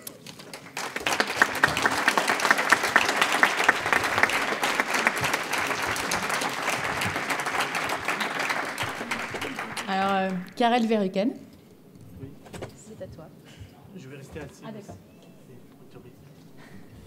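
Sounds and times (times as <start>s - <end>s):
audience applauding: 0.1s - 10.7s.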